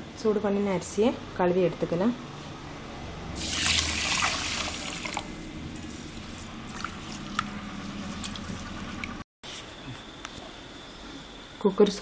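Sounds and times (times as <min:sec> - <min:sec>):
water pouring into steel bowl: 0:03.4 - 0:05.4
water splashes and drips: 0:03.4 - 0:05.4, 0:06.7 - 0:09.2.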